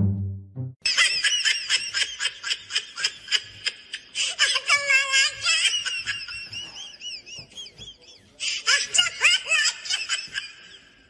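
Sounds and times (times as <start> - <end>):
high-pitched laughter: 0.9 - 11.0.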